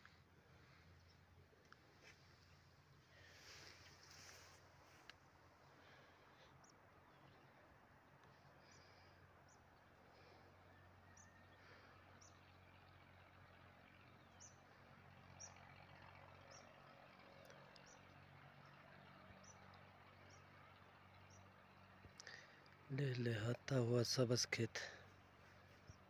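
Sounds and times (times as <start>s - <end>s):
steady low hum: 0.0s - 15.6s.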